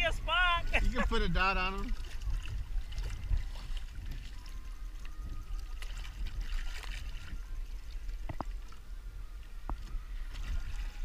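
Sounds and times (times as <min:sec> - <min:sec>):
water slapping against boat: 0:00.0 - 0:11.0
wind rumbling on microphone: 0:00.0 - 0:11.0.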